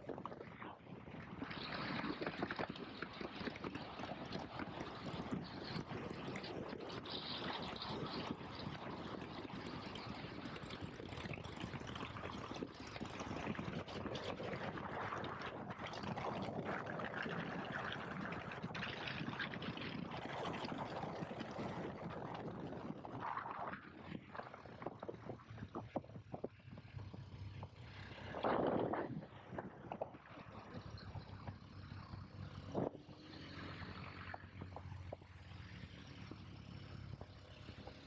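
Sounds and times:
wind rushing over microphone: 0.0 - 27.0, 27.6 - 31.5
motorcycle engine running: 24.6 - 38.0.

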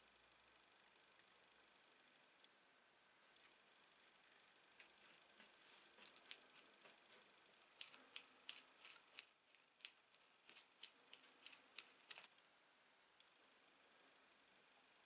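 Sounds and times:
stick tapping and scraping on card: 5.4 - 6.7, 7.6 - 12.3.

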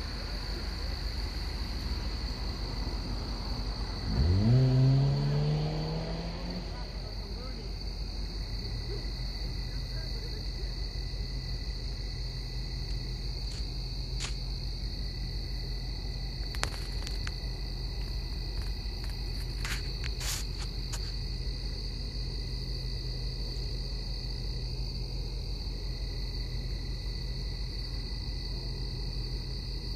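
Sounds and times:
crickets trilling: 0.0 - 29.9.

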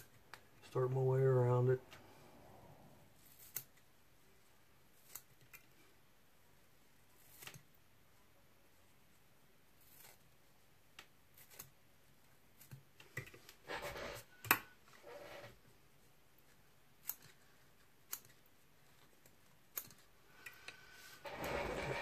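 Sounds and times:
scissors snipping hair: 17.0 - 17.4, 18.0 - 18.5.

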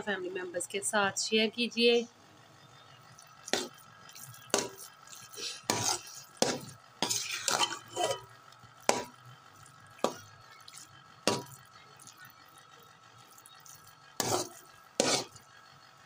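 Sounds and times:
metal spatula scraping a pot: 3.5 - 9.2, 10.0 - 12.2, 13.7 - 15.4.

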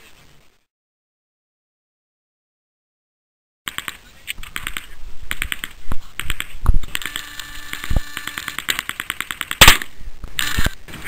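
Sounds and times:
automatic gunfire bursts: 3.7 - 10.6
single loud gunshots: 9.6 - 9.9.

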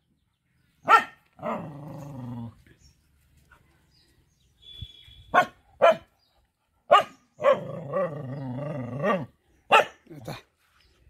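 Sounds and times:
dog barking: 0.8 - 1.2, 5.3 - 6.1, 6.9 - 7.7, 9.7 - 10.0
dog growling: 1.4 - 2.6.

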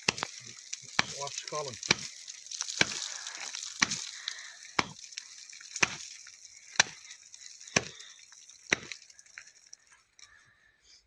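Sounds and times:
hatchet chopping ice: 0.0 - 3.1, 3.8 - 4.2, 4.8 - 5.1, 5.8 - 7.1, 7.7 - 8.0, 8.7 - 9.0.

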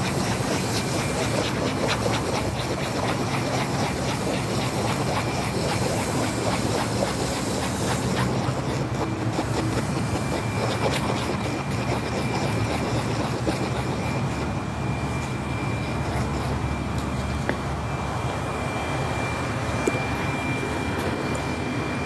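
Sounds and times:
screwdriver scraping paste on cardboard: 0.0 - 14.6, 15.8 - 16.7.

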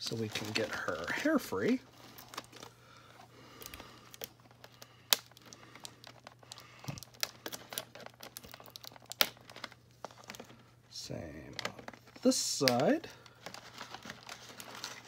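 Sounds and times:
plastic box crinkling: 0.0 - 10.7, 11.4 - 15.0.

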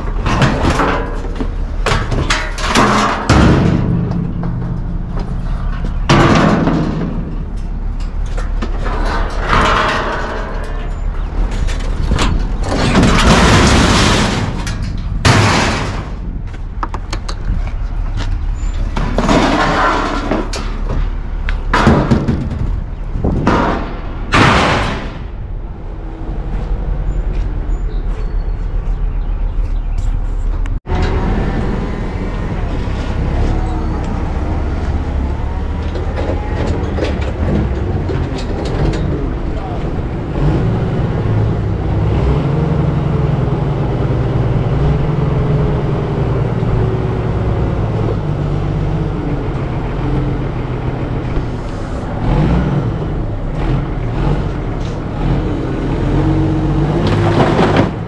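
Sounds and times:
metal scraping: 0.0 - 16.5, 18.4 - 22.8
metal clanging into dumpster: 0.0 - 17.4, 18.5 - 25.6, 32.6 - 42.9
steady low rumble: 0.0 - 28.0.

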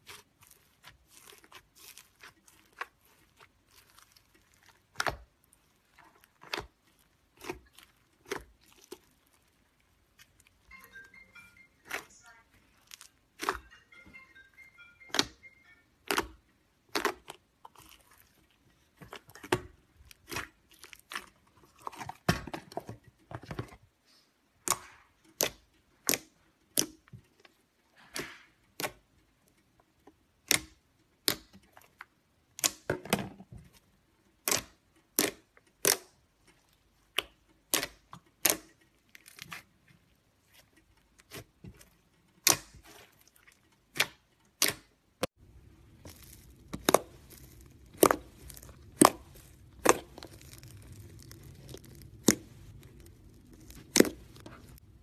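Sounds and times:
slime squelching: 0.0 - 55.0.

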